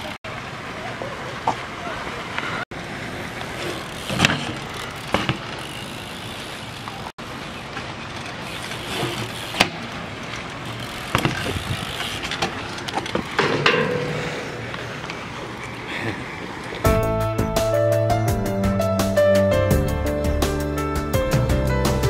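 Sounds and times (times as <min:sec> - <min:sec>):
bike tyres rolling on concrete: 0:00.0 - 0:17.0
sharp knocks from bike landings: 0:04.0 - 0:05.6, 0:11.0 - 0:14.9.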